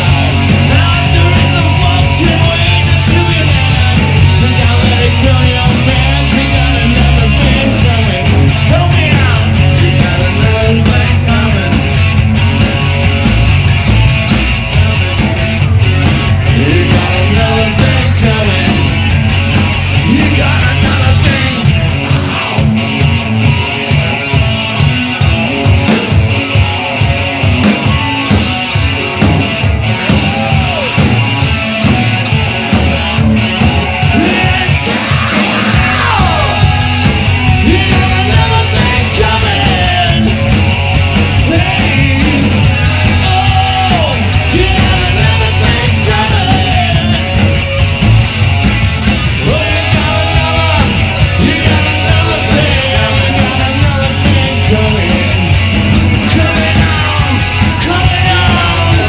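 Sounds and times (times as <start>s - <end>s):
men singing: 0.0s - 11.9s, 16.5s - 19.1s, 20.0s - 22.7s, 34.0s - 40.5s, 41.3s - 47.3s, 49.3s - 59.0s
bass guitar: 0.0s - 59.0s
drums: 0.0s - 59.0s
electric guitar: 0.0s - 59.0s
live rock band playing: 0.0s - 59.0s.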